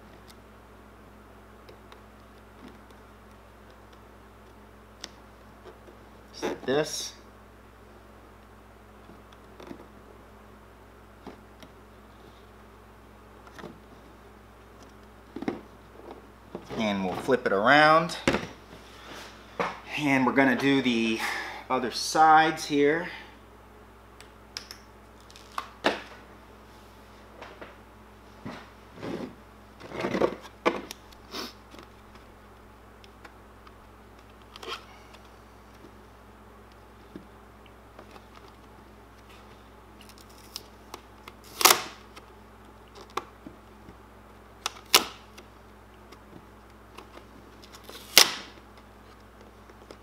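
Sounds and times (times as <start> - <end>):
steady low hum: 0.0 - 50.0
vinyl decal crinkling: 25.1 - 25.7, 36.7 - 44.0.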